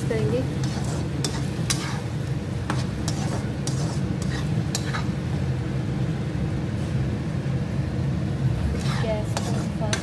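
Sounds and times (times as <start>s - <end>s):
metal spatula scraping pan: 0.5s - 5.2s, 8.7s - 10.0s.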